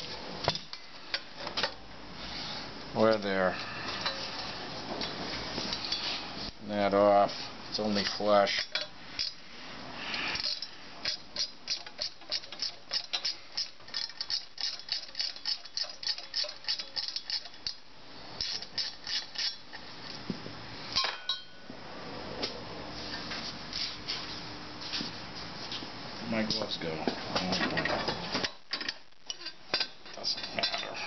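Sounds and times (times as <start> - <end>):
rapid metallic clicking of hand tool: 10.4 - 17.8
metal clink: 21.0 - 21.6.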